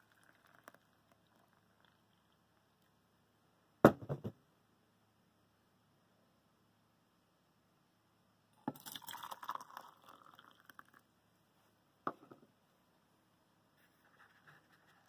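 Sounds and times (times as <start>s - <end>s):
water pouring into metal tumbler: 0.0s - 2.4s, 8.7s - 11.0s
sharp knock: 3.8s - 4.4s.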